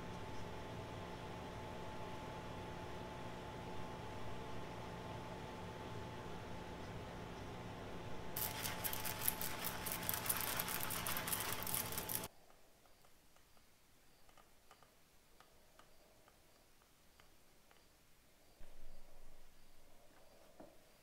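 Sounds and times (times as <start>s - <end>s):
coffee beans pouring rattle: 8.4s - 12.3s.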